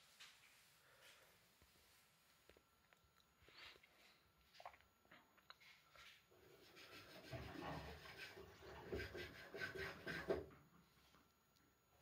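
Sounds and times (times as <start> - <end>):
wet laundry swishing in washer drum: 6.5 - 10.6.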